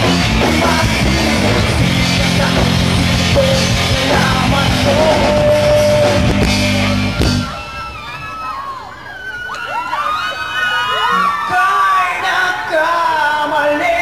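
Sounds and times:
live rock band playing: 0:00.0 - 0:08.2.

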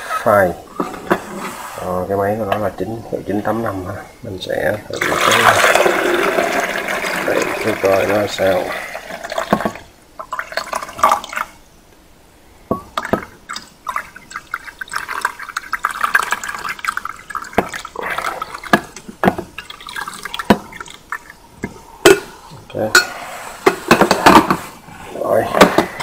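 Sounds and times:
water pouring into reservoir: 0:04.9 - 0:11.6, 0:13.0 - 0:21.7.

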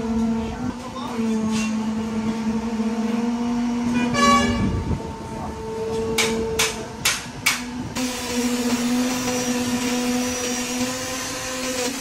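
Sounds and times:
engine hum: 0:00.0 - 0:12.0
vehicle horn toot: 0:03.9 - 0:04.8.

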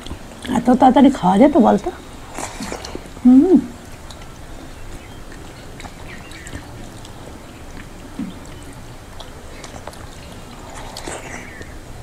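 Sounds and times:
wet chewing: 0:02.0 - 0:12.0
person humming: 0:03.2 - 0:03.8.

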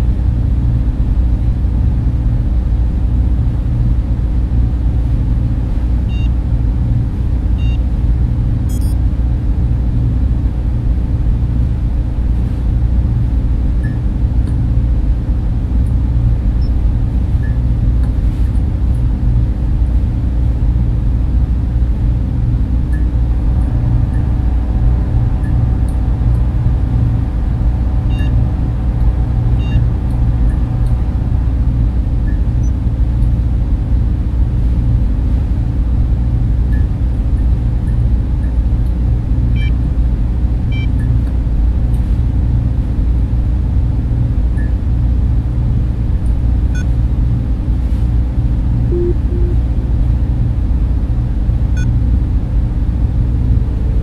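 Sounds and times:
server fans droning: 0:00.0 - 0:54.0
electronic beeps: 0:08.7 - 0:09.0, 0:48.9 - 0:49.6.

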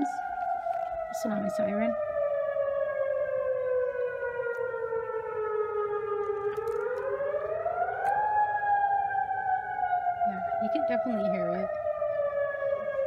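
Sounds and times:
warning siren wailing: 0:00.0 - 0:13.0.

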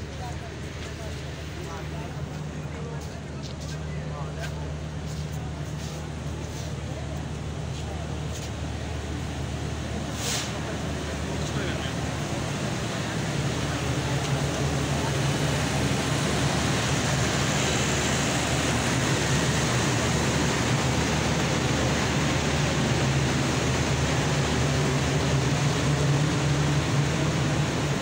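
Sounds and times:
engine rushing noise: 0:00.0 - 0:28.0
low train drone: 0:00.0 - 0:28.0.

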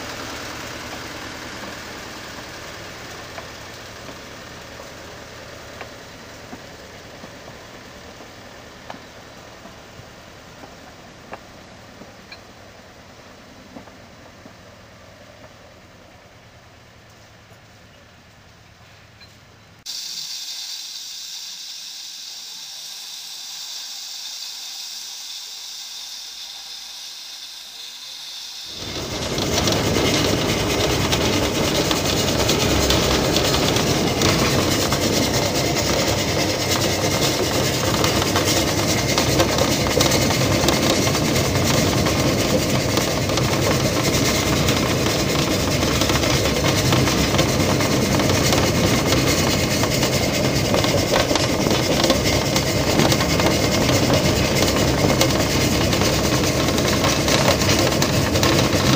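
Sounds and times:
steam hissing: 0:00.0 - 0:13.9, 0:19.9 - 0:58.9
steam locomotive running: 0:00.0 - 0:17.0, 0:19.8 - 0:58.9
rail clatter: 0:28.7 - 0:58.9.

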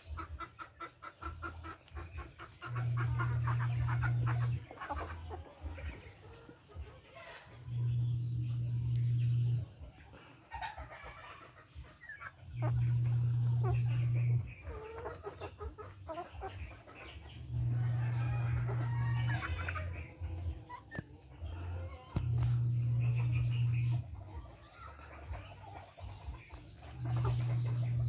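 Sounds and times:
hens clucking: 0:00.0 - 0:28.0
loud low hum: 0:02.7 - 0:04.7, 0:07.6 - 0:09.9, 0:12.4 - 0:14.7, 0:17.2 - 0:20.6, 0:21.4 - 0:24.5, 0:25.6 - 0:28.0.

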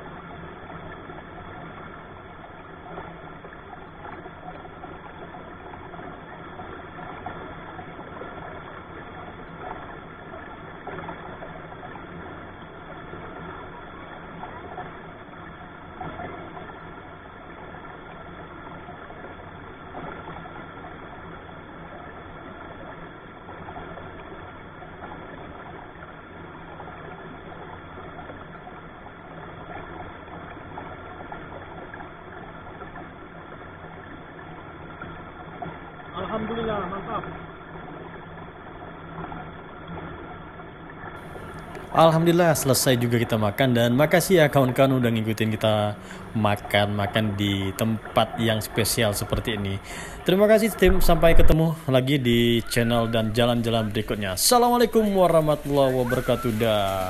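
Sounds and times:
stream rushing over rocks: 0:45.7 - 0:57.0.

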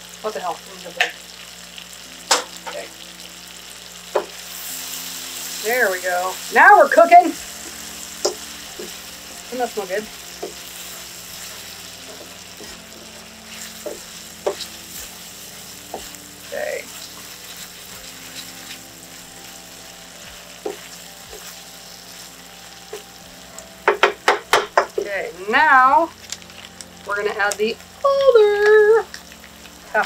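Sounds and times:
vegetables sizzling in butter: 0:00.0 - 0:30.0
wooden spoon scraping a pan: 0:07.6 - 0:23.1.

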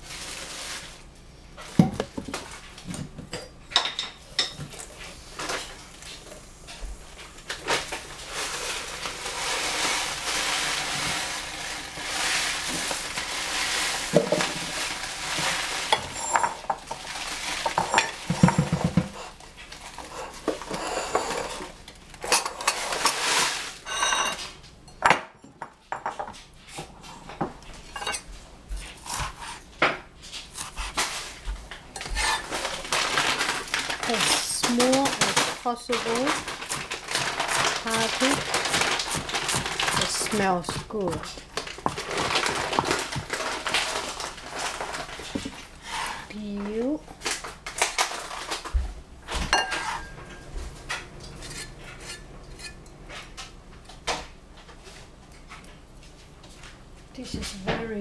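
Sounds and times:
dishes and utensils clattering: 0:01.6 - 0:05.8, 0:13.6 - 0:28.3, 0:31.9 - 0:45.6, 0:49.3 - 0:53.4.

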